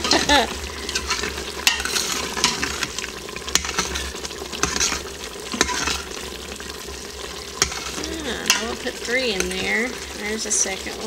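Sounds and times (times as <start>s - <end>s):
metal spoon stirring thick sauce: 0.0s - 6.7s, 7.4s - 10.1s
spoon clinking against metal pot: 7.6s - 8.8s.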